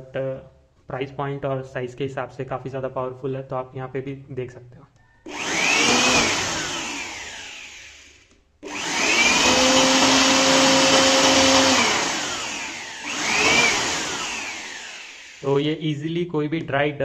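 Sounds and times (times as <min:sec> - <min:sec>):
electric air blower whining: 0:05.3 - 0:15.8.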